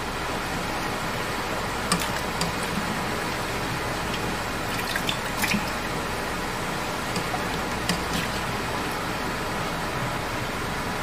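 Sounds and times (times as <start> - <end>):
steady background noise: 0.0 - 11.0
small water splashes: 1.9 - 2.9, 4.0 - 5.9, 7.1 - 8.6.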